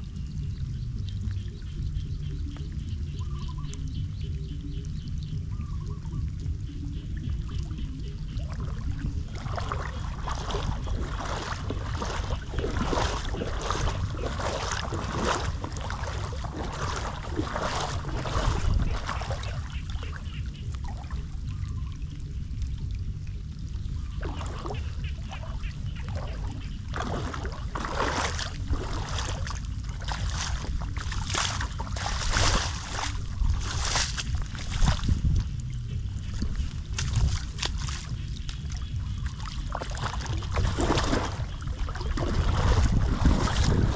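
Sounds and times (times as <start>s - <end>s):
light rain on water: 0.0s - 42.2s
low rumble: 0.0s - 43.9s
footsteps splashing through water: 0.8s - 43.9s.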